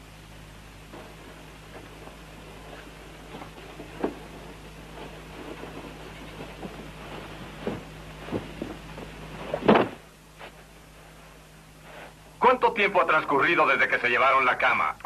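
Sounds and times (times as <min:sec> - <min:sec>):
faint steady hum: 0:00.0 - 0:15.0
blanket rustling and flapping: 0:00.8 - 0:11.4.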